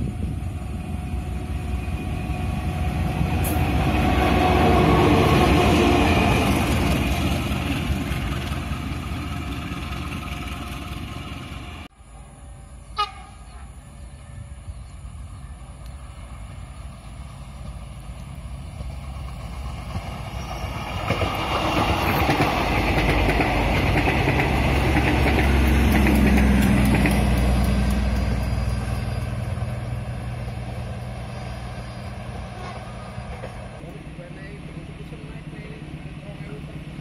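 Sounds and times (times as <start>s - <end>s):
train engine droning: 0.0s - 37.0s
train wheels clacking on rails: 17.6s - 30.8s.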